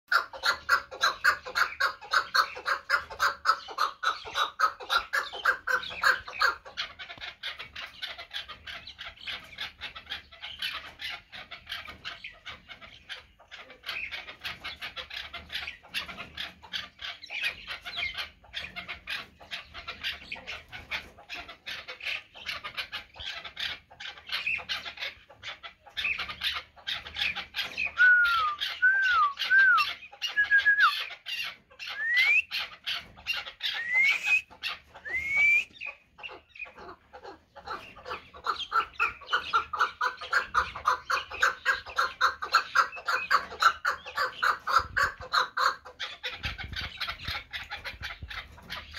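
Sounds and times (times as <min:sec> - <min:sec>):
partridges calling harsh chuk notes: 0:28.0 - 0:31.0, 0:31.9 - 0:32.5, 0:33.7 - 0:35.7.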